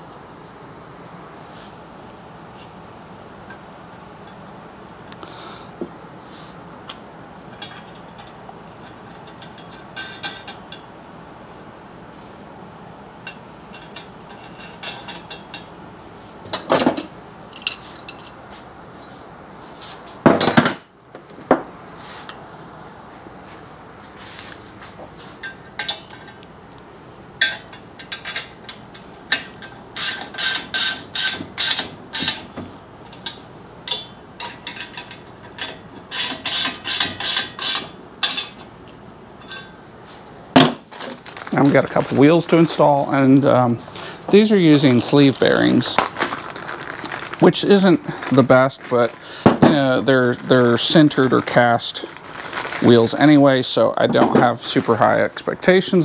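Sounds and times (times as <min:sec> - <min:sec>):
metal clinks: 0:39.4 - 0:39.8.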